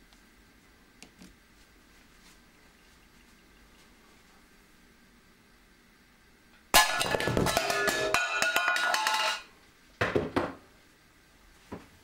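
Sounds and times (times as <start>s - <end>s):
tin can clattering and ringing: 6.8s - 9.5s.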